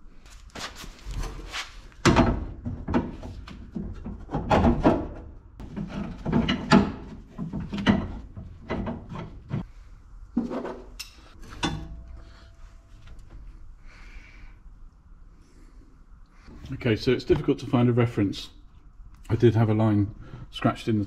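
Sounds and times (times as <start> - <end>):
metal knocks and scrapes: 1.1 - 9.7.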